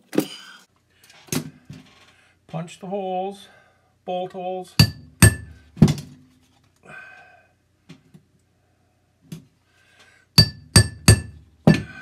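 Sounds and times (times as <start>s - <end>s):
hammer striking metal punch: 4.8s - 6.0s, 10.4s - 12.0s.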